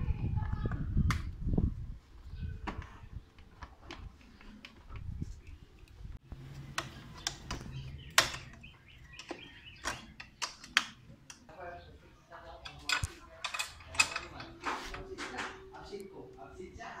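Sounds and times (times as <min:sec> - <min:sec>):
plastic parts clicking and tapping: 0:06.7 - 0:11.5, 0:12.6 - 0:15.5.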